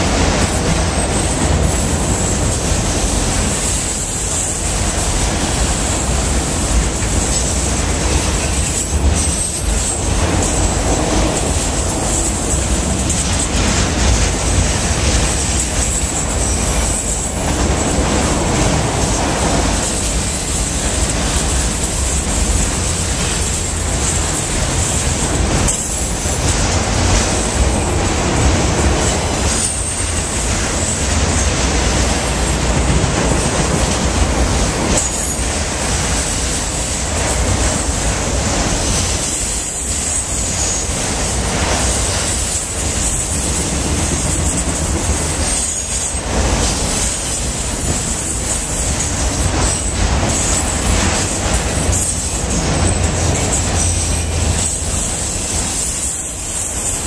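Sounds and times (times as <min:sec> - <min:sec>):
train wheels rumbling on rails: 0:00.0 - 0:57.0
high wheel squeal: 0:29.0 - 0:32.8, 0:34.9 - 0:37.3, 0:38.9 - 0:57.0.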